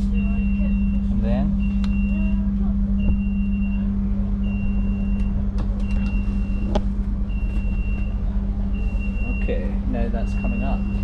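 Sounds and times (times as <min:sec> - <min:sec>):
steady low hum: 0:00.0 - 0:11.0
high electronic beeps: 0:07.3 - 0:11.0.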